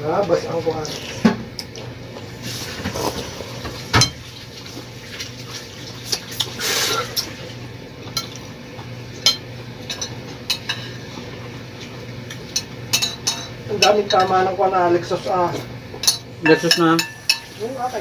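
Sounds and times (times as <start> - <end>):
cutlery clinking on plates: 9.2 - 11.0, 12.3 - 14.4, 16.0 - 17.6.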